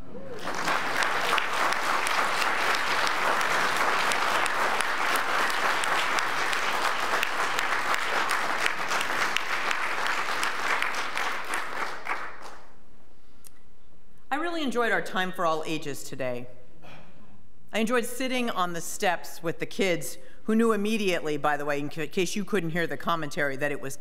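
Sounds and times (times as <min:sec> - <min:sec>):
crowd applauding: 0:00.0 - 0:12.7.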